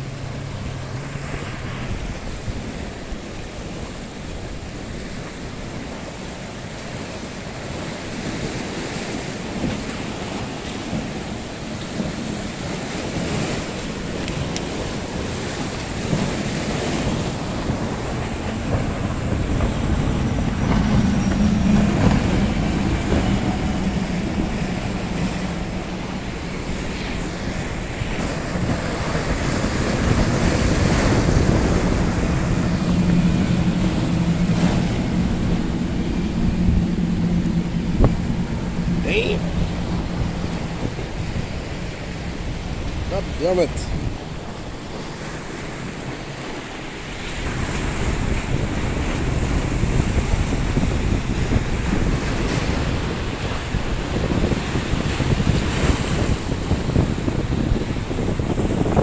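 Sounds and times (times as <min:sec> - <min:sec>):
choppy sea and surf: 0:00.0 - 0:59.0
powerboat engines droning: 0:00.0 - 0:59.0
wind buffeting microphone: 0:00.0 - 0:59.0.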